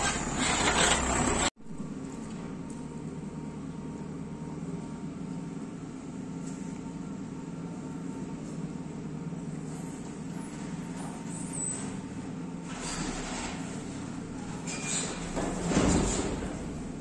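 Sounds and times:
diesel engine running under load: 0.0 - 17.0.

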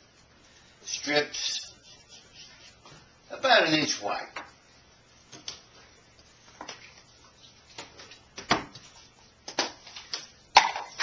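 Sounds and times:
kitchen items knocking and clattering: 9.5 - 11.0.

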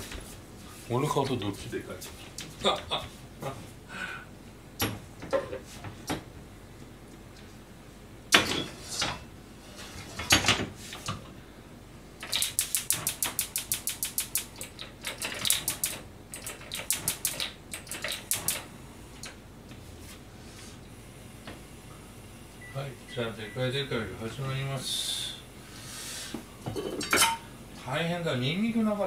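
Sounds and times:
gas igniter clicking: 12.2 - 14.8.

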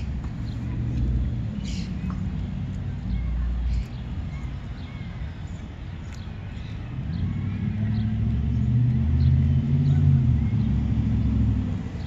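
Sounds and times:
vehicle engine passing by: 6.9 - 12.0.

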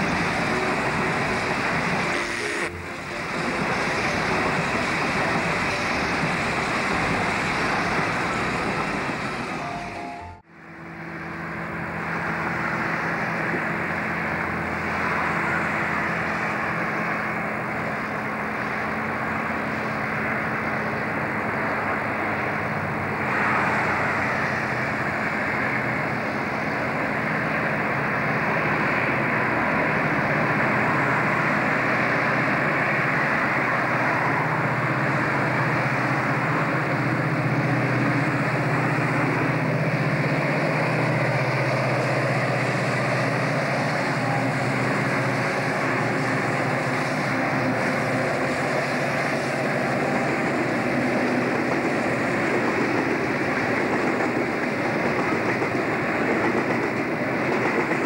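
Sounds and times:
diesel locomotive engine drone: 0.0 - 58.0
constant rushing noise: 11.6 - 58.0.

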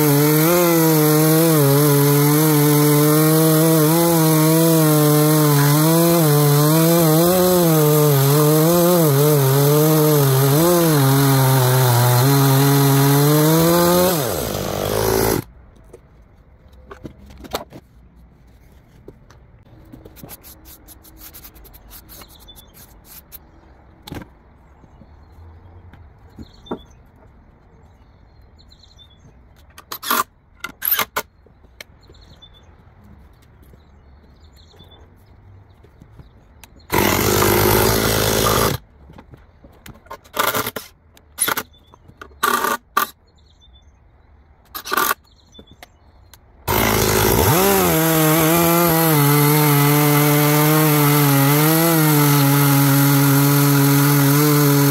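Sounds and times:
chainsaw cutting log: 0.0 - 15.5, 36.9 - 38.8, 40.3 - 41.6, 42.4 - 43.2, 46.7 - 54.9.

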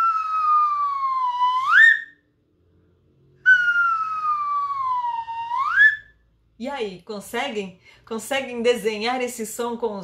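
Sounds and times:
slide whistle gliding: 0.0 - 2.2, 3.4 - 6.2.

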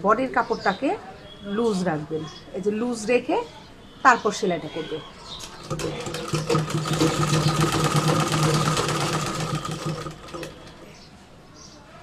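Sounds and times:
sewing machine stitching: 5.4 - 10.8.

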